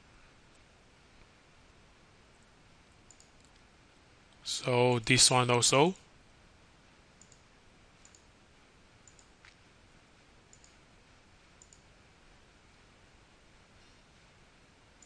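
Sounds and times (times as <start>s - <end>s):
computer mouse clicks: 3.1s - 3.6s, 7.2s - 7.4s, 8.0s - 8.3s, 9.0s - 9.6s, 10.5s - 10.8s, 11.6s - 11.9s.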